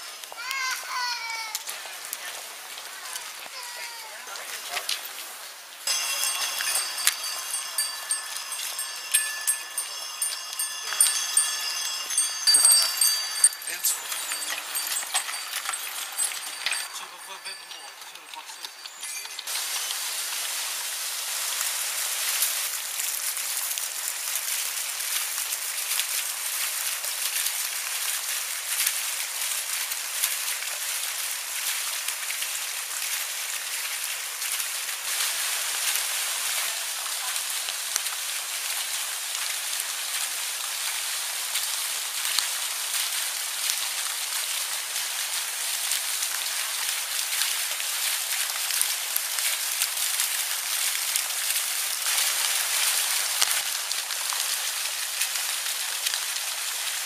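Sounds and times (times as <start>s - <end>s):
dense crackling hiss: 0.0s - 57.0s.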